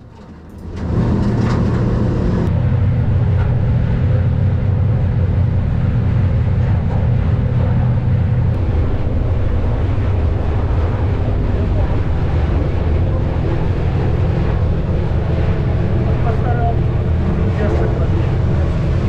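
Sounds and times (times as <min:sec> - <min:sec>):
boat engine running: 0:00.0 - 0:19.0
water rushing along hull: 0:00.0 - 0:19.0
wind on microphone: 0:00.0 - 0:19.0.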